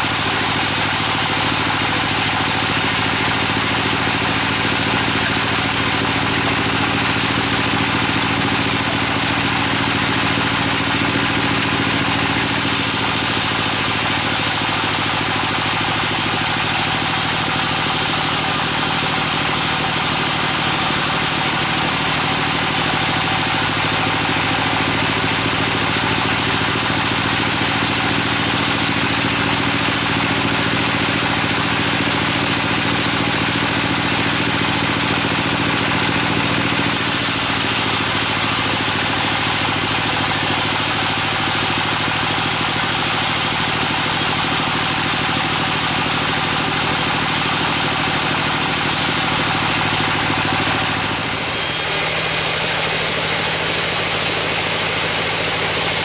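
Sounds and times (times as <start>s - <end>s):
sawmill machine hum: 0.0s - 56.0s
saw blade hissing through wood: 36.9s - 41.8s, 51.1s - 56.0s.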